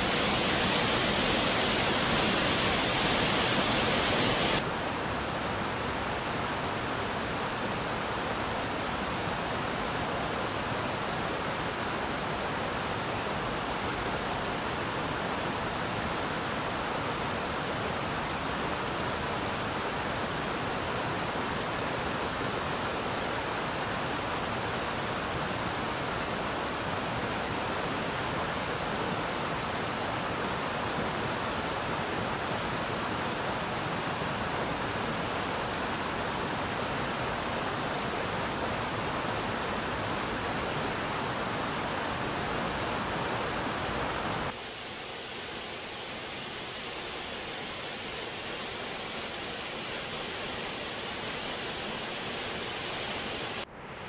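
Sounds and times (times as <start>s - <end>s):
waterfall rushing: 0.0s - 53.7s.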